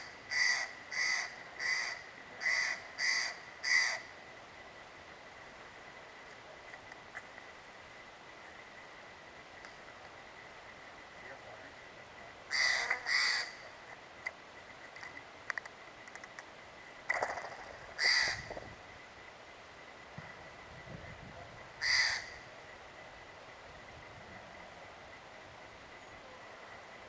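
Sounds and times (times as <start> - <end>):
jay harsh rasping calls: 0.0 - 4.1, 12.5 - 13.7, 18.0 - 18.5, 21.8 - 22.4.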